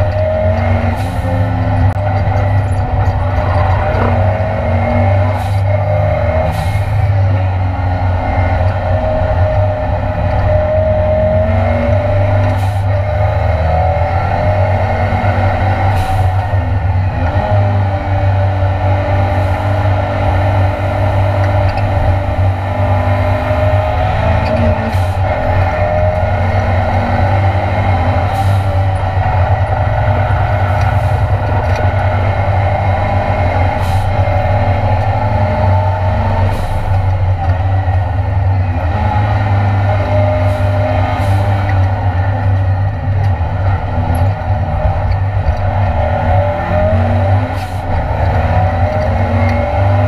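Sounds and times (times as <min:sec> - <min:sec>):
race car engine at high revs: 0:00.0 - 0:50.0.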